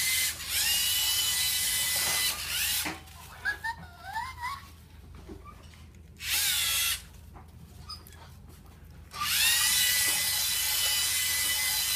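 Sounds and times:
robot electric motors whining: 0.0 - 2.9, 6.2 - 7.0, 9.2 - 11.9.

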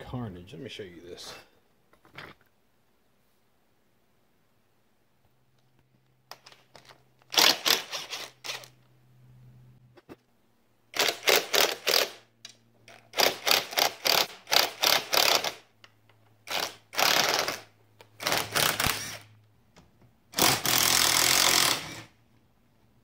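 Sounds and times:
impact driver rattling bursts: 7.3 - 8.7, 10.9 - 12.2, 12.9 - 15.7, 16.4 - 19.3, 20.3 - 22.2.

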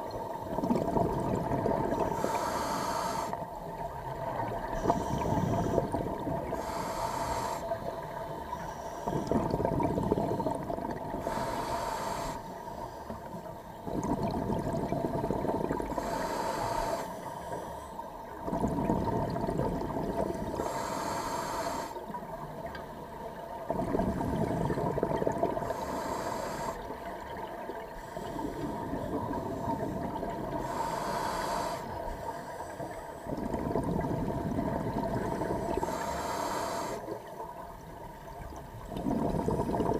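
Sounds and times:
bubbling exhaled air: 0.0 - 3.4, 4.2 - 7.8, 9.0 - 12.4, 13.8 - 17.1, 18.4 - 22.0, 23.6 - 27.0, 27.8 - 32.0, 32.8 - 37.1, 38.8 - 39.9
faint steady hum: 0.0 - 39.9
hissing regulator inhale: 1.9 - 3.5, 4.7 - 10.6, 11.2 - 13.5, 15.1 - 18.6, 20.3 - 22.2, 25.5 - 27.1, 27.9 - 33.4, 34.4 - 37.2.

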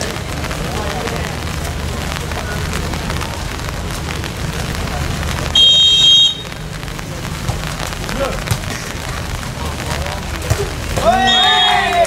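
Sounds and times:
crowd chatter: 0.0 - 12.0
referee's whistle blast: 5.6 - 6.4, 11.1 - 11.9.

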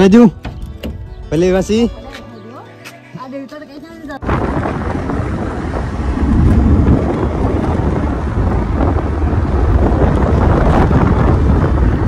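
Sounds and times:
wind buffeting microphone: 4.0 - 12.0.

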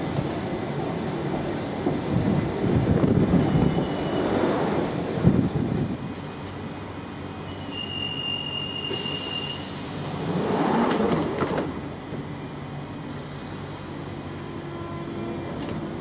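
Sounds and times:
sliding doors closing: 8.9 - 11.8.

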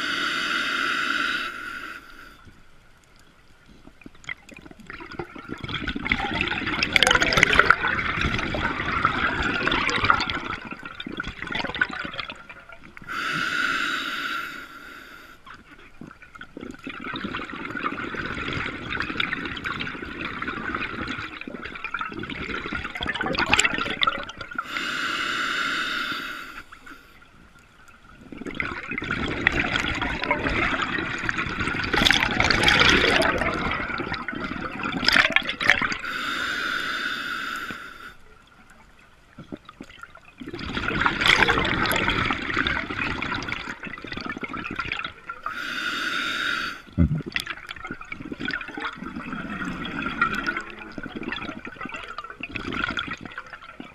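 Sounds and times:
regulator hissing inhalation: 0.0 - 2.4, 13.1 - 15.4, 24.6 - 27.0, 36.0 - 38.2, 45.5 - 46.9
exhaled bubbles underwater: 3.7 - 13.5, 15.4 - 24.9, 26.4 - 36.5, 38.3 - 53.9.

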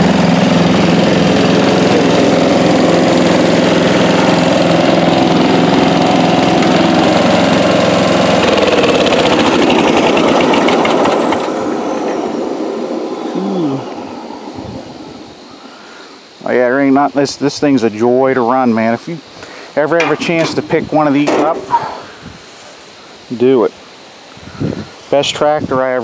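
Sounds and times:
lawn tractor engine running: 0.0 - 13.0, 19.9 - 22.0.

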